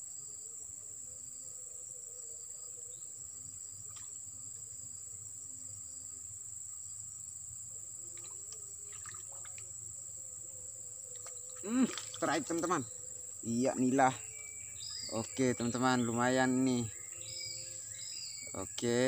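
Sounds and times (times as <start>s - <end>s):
crickets trilling: 0.0s - 19.0s
faint ticks: 8.1s - 9.8s, 11.1s - 12.7s.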